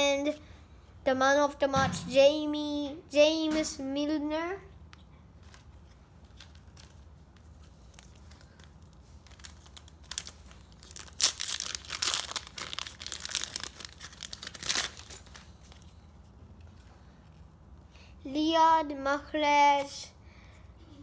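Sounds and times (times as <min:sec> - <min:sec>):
foil packet crinkling: 0:05.4 - 0:16.1.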